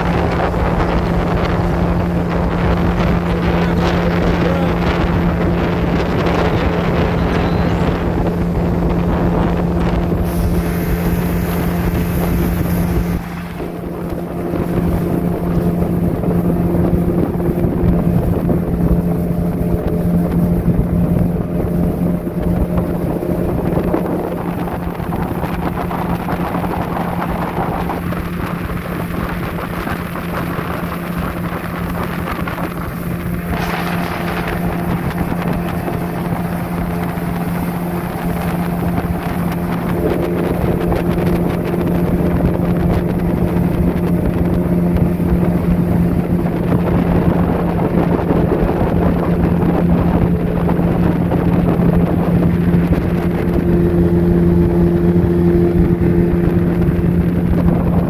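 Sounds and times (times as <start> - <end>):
boat motor droning: 0.0 - 58.0
wind on microphone: 0.0 - 58.0.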